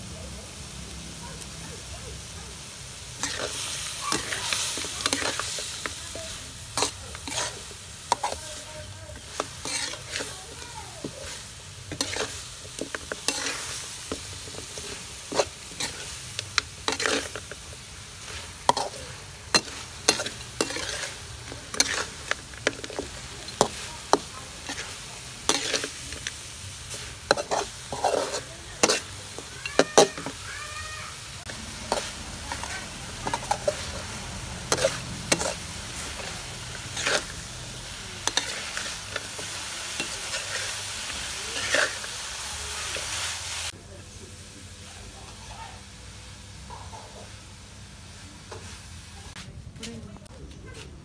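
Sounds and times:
food sizzling in a wok: 0:00.0 - 0:50.3
metal spatula scraping a wok: 0:03.0 - 0:30.5, 0:31.2 - 0:43.7.

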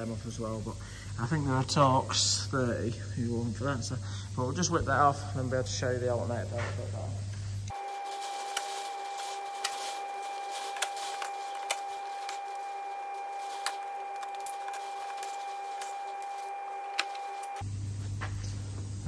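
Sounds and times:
impact driver whining: 0:07.6 - 0:17.7.

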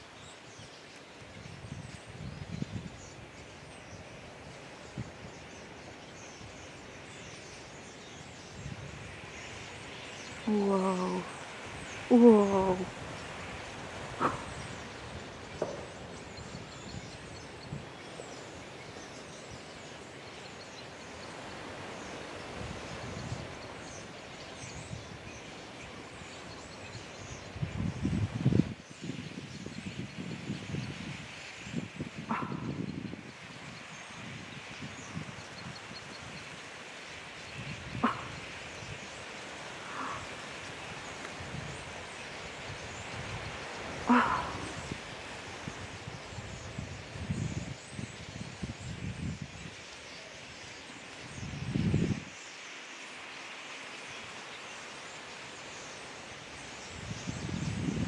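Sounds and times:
outdoor background hiss: 0:00.0 - 0:58.0
starlings chirping and twittering: 0:00.1 - 0:52.8
animal barking call: 0:14.2 - 0:14.7, 0:32.3 - 0:32.8, 0:38.0 - 0:38.4, 0:44.1 - 0:44.8.

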